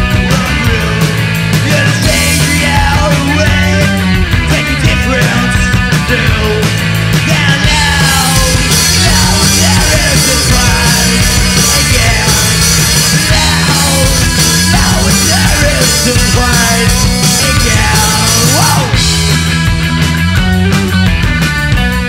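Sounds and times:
rock band playing live: 0.0s - 22.0s.

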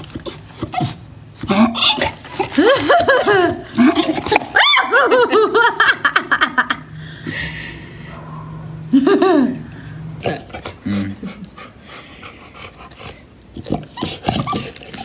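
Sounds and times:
person laughing: 2.4s - 7.8s, 8.9s - 9.7s.

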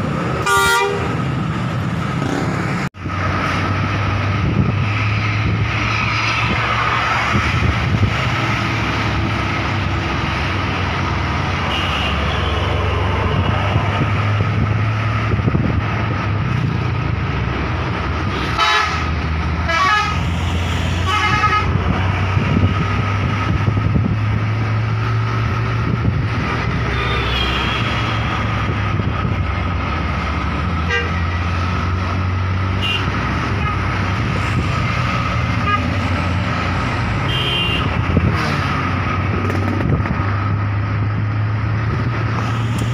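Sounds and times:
coach and motorcycle engines droning: 0.0s - 42.9s
road and wind noise: 0.0s - 42.9s
bus horn warbling: 0.4s - 1.3s, 11.6s - 12.8s, 18.5s - 21.8s, 30.8s - 31.2s, 32.8s - 33.9s, 35.6s - 35.9s, 37.2s - 37.9s.

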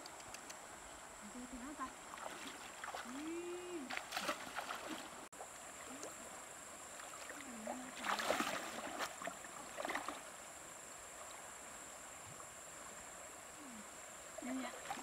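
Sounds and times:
splashing: 2.0s - 6.3s, 6.9s - 10.3s
water sloshing around legs: 2.0s - 6.3s, 6.9s - 10.3s.

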